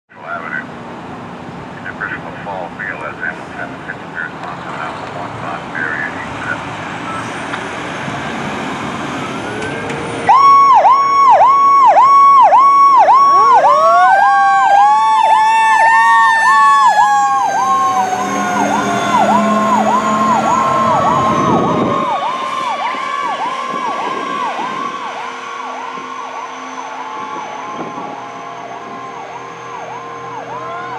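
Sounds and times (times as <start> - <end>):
siren rising and falling: 6.5 - 30.9
fast yelping siren: 9.1 - 30.9.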